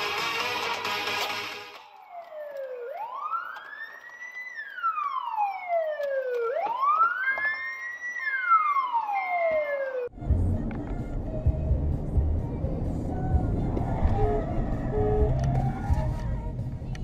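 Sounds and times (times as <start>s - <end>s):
police siren wailing: 1.5s - 10.2s, 13.3s - 16.3s.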